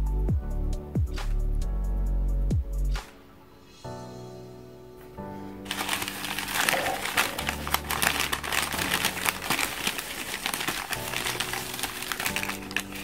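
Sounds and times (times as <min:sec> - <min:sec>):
newspaper crumpling and rustling: 0:05.7 - 0:13.0.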